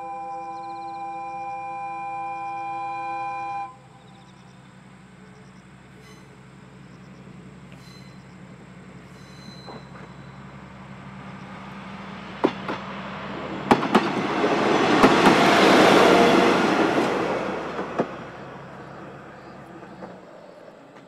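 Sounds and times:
diesel railcar passing: 0.0s - 21.0s
wheels clacking on rail joints: 5.5s - 21.0s.

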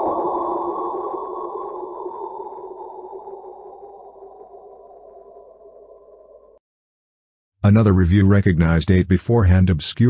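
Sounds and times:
eerie rushing drone: 0.0s - 6.6s.

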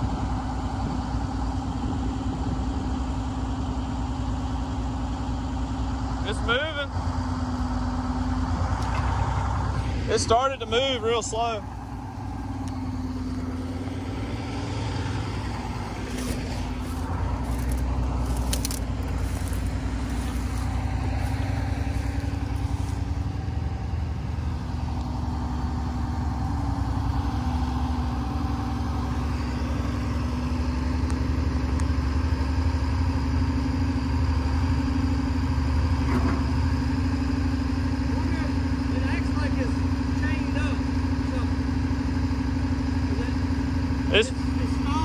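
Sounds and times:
diesel engine humming: 0.0s - 45.0s.

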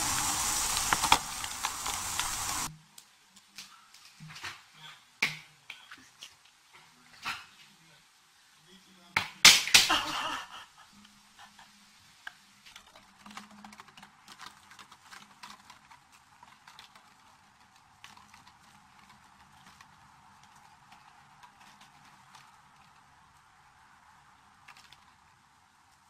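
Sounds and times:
plastic bottle scraping over gravel: 0.0s - 2.7s.

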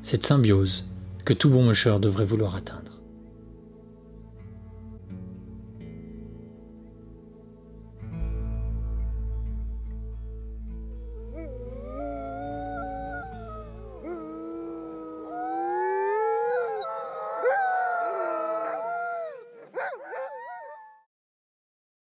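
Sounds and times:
dogs howling: 10.9s - 21.1s
dogs yipping: 11.0s - 21.0s.

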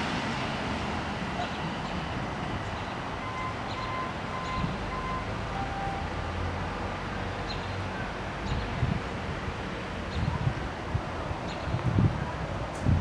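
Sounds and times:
distant light rail rumble: 0.0s - 13.0s
outdoor background noise: 0.0s - 13.0s.

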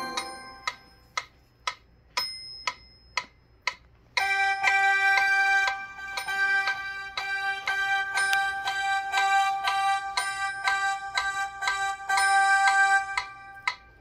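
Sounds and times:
held keyboard chord: 0.0s - 1.2s, 4.2s - 14.0s
metronome ticking: 0.0s - 14.0s.

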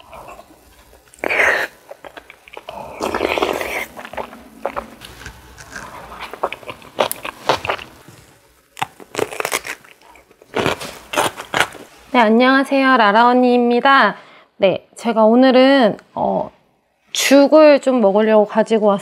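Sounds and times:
crunchy food chewing: 0.0s - 11.9s.

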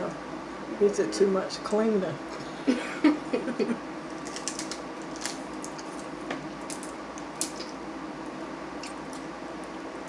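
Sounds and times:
wet chewing: 4.2s - 7.8s, 8.8s - 9.7s.

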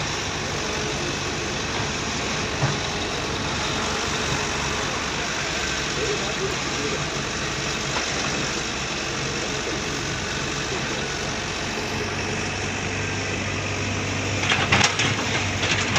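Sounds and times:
diesel roller engine running: 0.0s - 15.9s
clattering: 14.4s - 15.9s.

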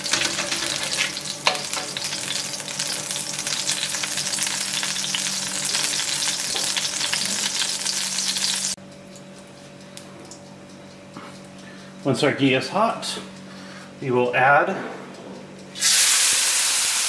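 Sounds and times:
butter sizzling in a pan: 0.0s - 8.8s, 15.8s - 17.0s.

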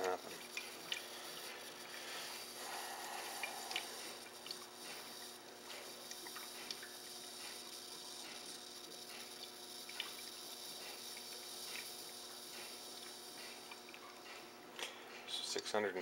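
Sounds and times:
electrolysis cell hissing: 0.0s - 14.4s
small bubbling pops: 3.4s - 5.0s.

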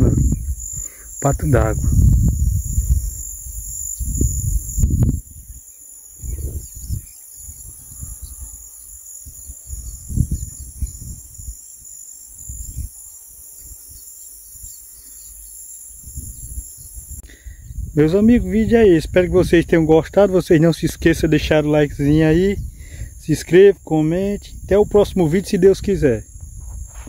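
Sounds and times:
high-pitched insect chorus: 0.0s - 27.0s
rumbles and bumps on microphone: 1.7s - 3.2s, 26.2s - 27.0s.

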